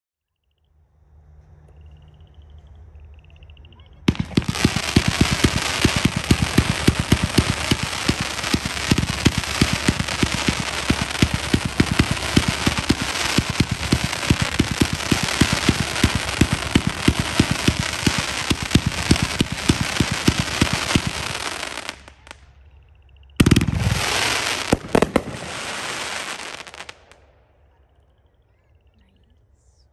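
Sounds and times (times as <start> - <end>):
fireworks shots: 4.0 - 22.5, 23.4 - 27.4
loud firework burst: 4.1 - 22.3, 23.4 - 27.2
firework crackle: 4.1 - 22.4, 23.4 - 27.2.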